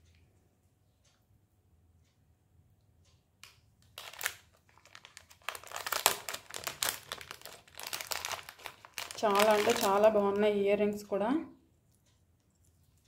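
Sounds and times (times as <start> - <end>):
wrapping crinkling: 3.9 - 10.6.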